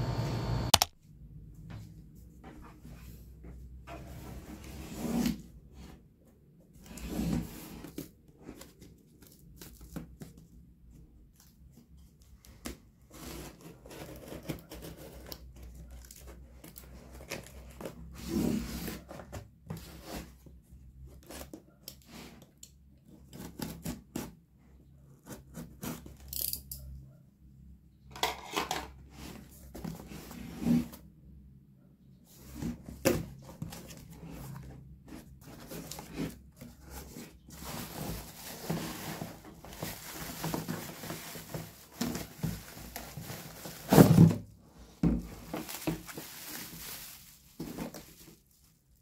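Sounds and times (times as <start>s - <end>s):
cardboard box rustling: 32.4s - 48.5s.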